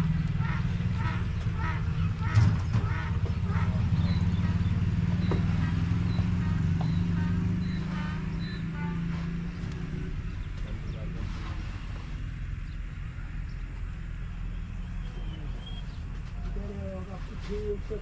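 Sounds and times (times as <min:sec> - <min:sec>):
stationary diesel engine beat: 0:00.0 - 0:11.2
faint bird chirps: 0:03.9 - 0:09.0.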